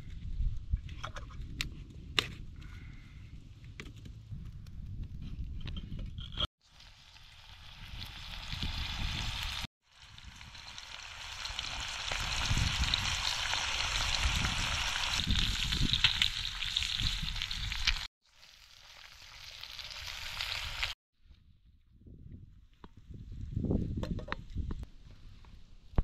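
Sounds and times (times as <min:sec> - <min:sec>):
meat sizzling in hot fat: 0:06.6 - 0:21.0.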